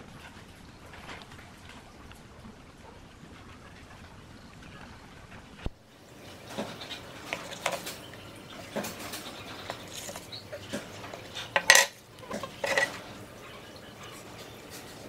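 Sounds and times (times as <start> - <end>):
ruler clattering on wooden bench: 6.4 - 13.1
steel ruler clicking and clinking: 8.8 - 13.0.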